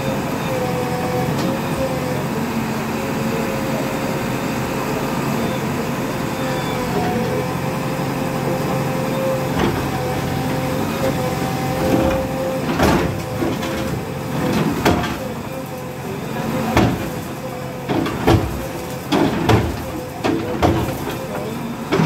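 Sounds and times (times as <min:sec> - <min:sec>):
diesel engine with hydraulic whine: 0:00.0 - 0:22.0
falling masonry: 0:05.1 - 0:22.0.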